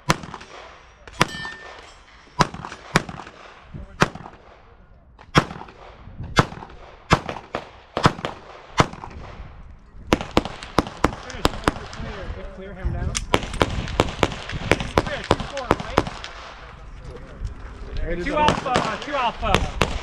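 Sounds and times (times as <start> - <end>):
gunshots with echo: 0.0 - 4.7, 5.3 - 9.5, 18.4 - 20.0.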